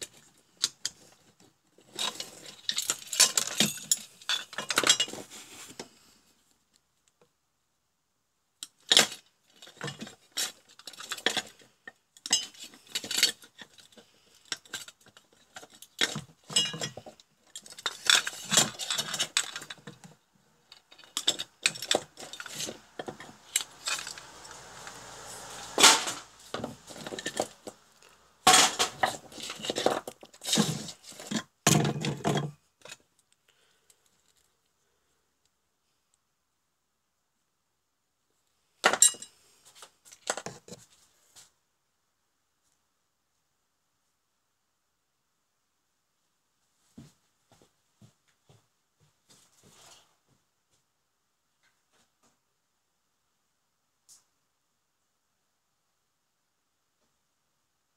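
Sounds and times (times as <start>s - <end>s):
metal parts clinking and clattering: 1.8s - 5.3s, 8.7s - 24.6s, 25.7s - 27.8s, 28.4s - 33.0s.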